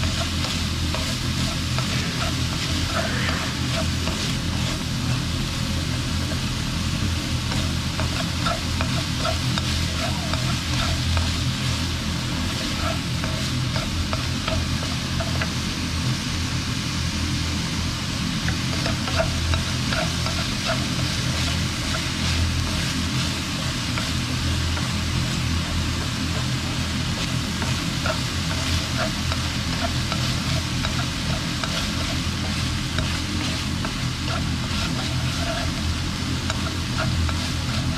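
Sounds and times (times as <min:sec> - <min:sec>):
meat sizzling in a wok: 0:00.0 - 0:37.9
steady low hum: 0:00.0 - 0:37.9
chopsticks ticking against pan: 0:07.4 - 0:11.4, 0:18.5 - 0:37.9.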